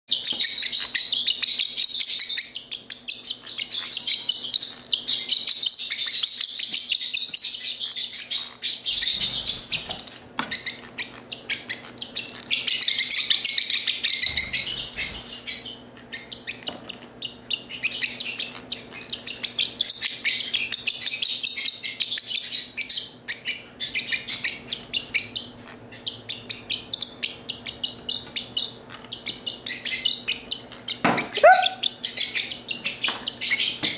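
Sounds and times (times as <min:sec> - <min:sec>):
bird chirping and chattering: 0:00.1 - 0:33.9.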